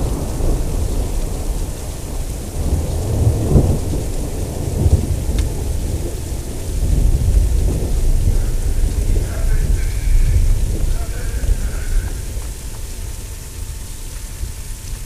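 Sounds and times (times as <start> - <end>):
rain falling: 0.0 - 15.0
thunder rumbling: 0.0 - 15.0.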